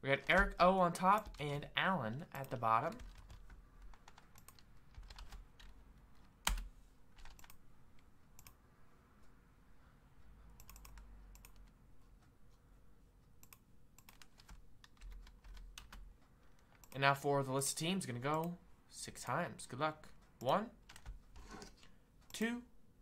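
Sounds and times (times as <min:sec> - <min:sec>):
keyboard and mouse clicks: 0:02.4 - 0:08.6, 0:10.6 - 0:11.8, 0:13.4 - 0:17.1.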